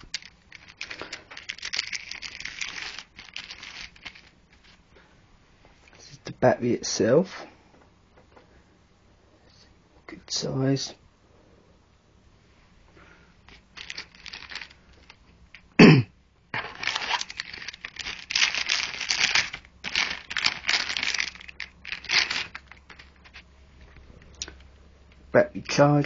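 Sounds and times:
cardboard and packaging rustling: 0.0 - 4.8, 13.5 - 15.2, 16.6 - 24.4.

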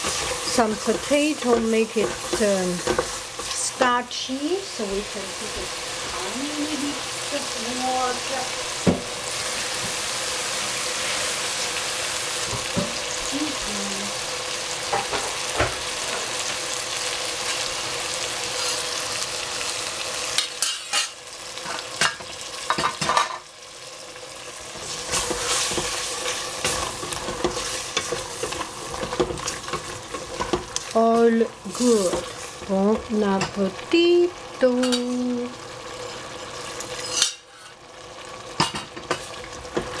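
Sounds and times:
spatula scraping a pan: 0.0 - 3.8, 18.5 - 19.0, 24.8 - 30.9, 36.0 - 37.8
food sizzling in a pan: 0.0 - 40.0.

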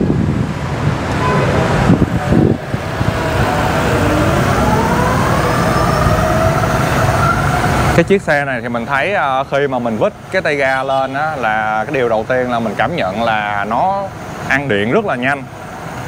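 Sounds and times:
hub motor whine: 0.0 - 16.0
steady rushing noise: 0.0 - 16.0.

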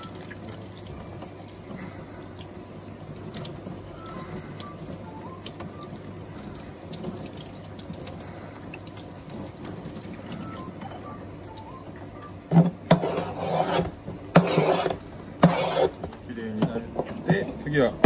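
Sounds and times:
tap water running into sink: 0.0 - 11.8
knocks and scrapes against sink: 12.5 - 15.9.

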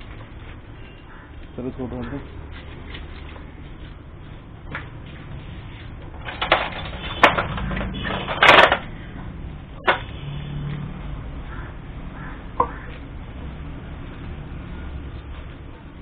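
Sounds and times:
metal parts clattering: 6.1 - 9.0.

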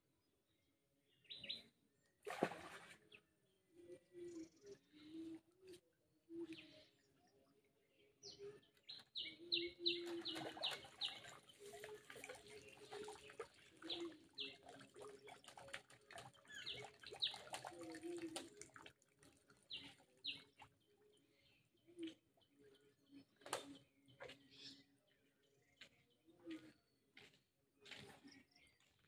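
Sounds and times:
water splashing off net: 2.2 - 3.0
lower held bird calls: 6.4 - 18.5
small birds chirping: 8.0 - 29.0.

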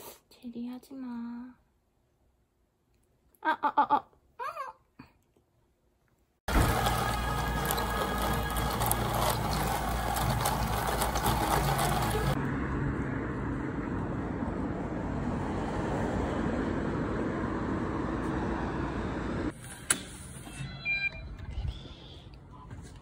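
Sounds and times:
road traffic noise: 6.5 - 20.4.

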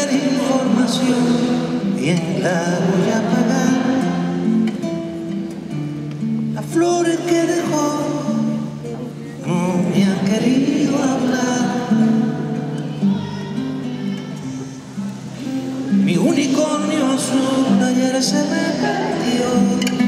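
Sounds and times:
man singing: 0.0 - 4.8, 6.5 - 13.3, 15.8 - 20.0
plucked classical guitar: 0.0 - 20.0.

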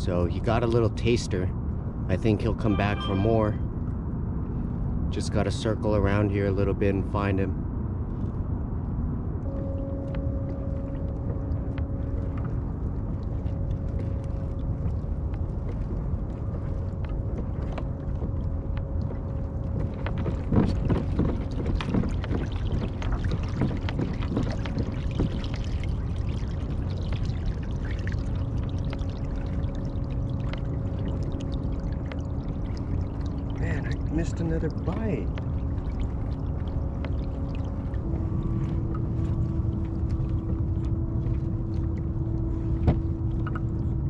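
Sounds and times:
faint hum: 0.0 - 44.0
low rumble: 1.3 - 44.0
water lapping against kayak hull: 10.5 - 44.0
splashes and knocks: 16.6 - 34.0.

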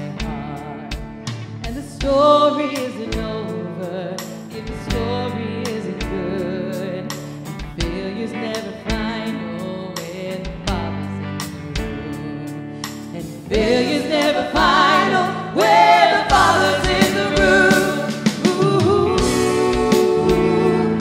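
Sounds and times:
electric guitar: 0.0 - 21.0
keyboard: 0.0 - 21.0
woman singing lead: 0.0 - 21.0
drum kit beat: 0.1 - 3.6, 12.8 - 21.0.

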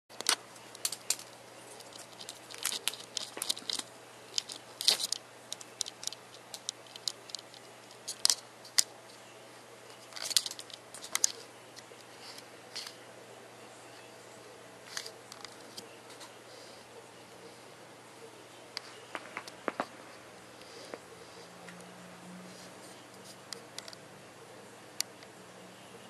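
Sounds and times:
light clicks and ticks: 0.2 - 8.9.

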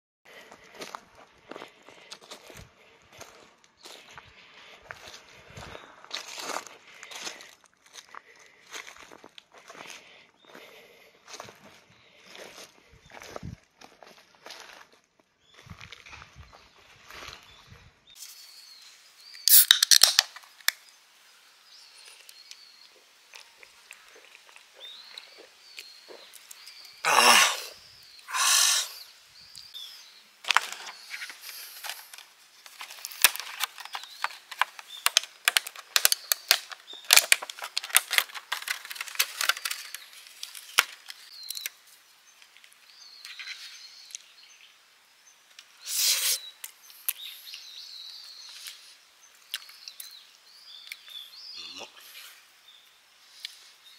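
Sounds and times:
birds chirping faintly: 0.3 - 19.7, 20.4 - 53.9
rustling and crinkling: 30.4 - 43.8.

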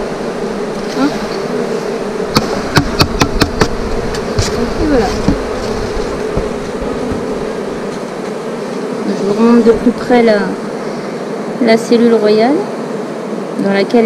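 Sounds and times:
bee buzzing past: 0.0 - 14.0
honey bees humming: 0.0 - 14.0
sharp knocks: 2.3 - 4.6, 5.2 - 8.3.

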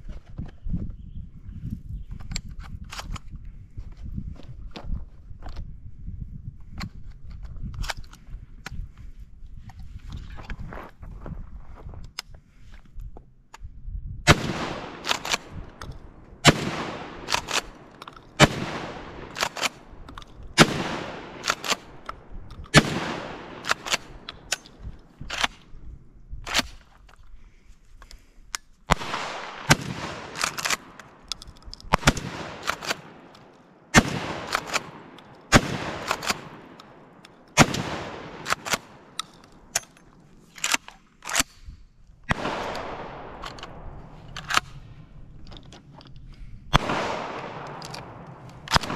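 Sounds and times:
shotgun shots echoing: 14.3 - 22.0, 22.7 - 24.7, 28.9 - 31.3, 31.9 - 39.7, 42.3 - 44.8, 46.7 - 48.9
shotgun pump clacks: 14.7 - 25.7, 28.1 - 41.7, 45.4 - 48.9.

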